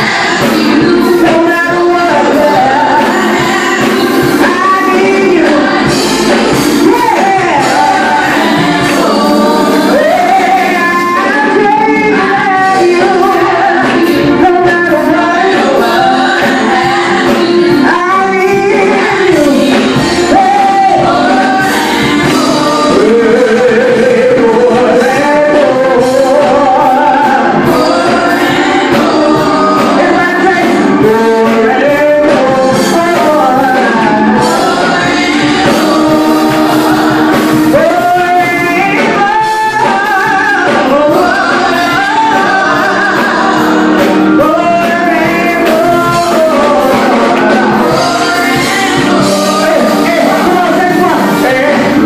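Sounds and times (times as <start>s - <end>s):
gospel group singing: 0.0s - 52.0s.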